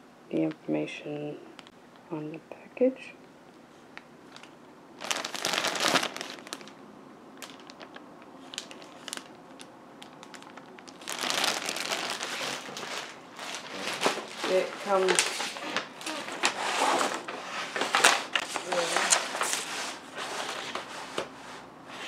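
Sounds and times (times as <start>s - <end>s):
plastic wrapping crinkling: 3.9s - 6.8s, 7.4s - 20.9s.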